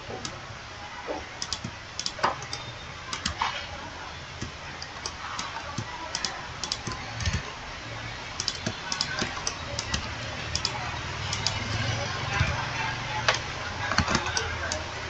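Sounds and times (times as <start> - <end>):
mouse and keyboard clicks: 1.4 - 3.6, 4.4 - 7.4, 8.4 - 11.6.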